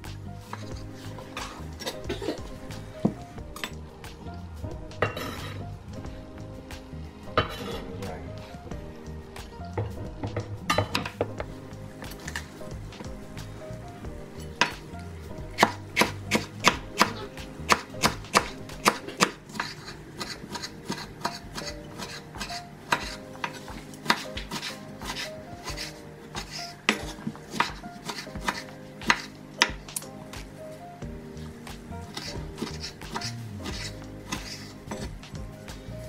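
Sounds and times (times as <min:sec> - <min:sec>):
knife cutting vegetables: 0:15.6 - 0:30.1, 0:32.1 - 0:35.1.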